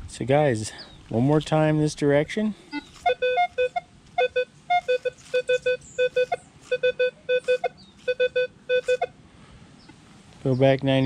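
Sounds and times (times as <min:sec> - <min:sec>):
metal detector beeps: 0:02.7 - 0:09.1.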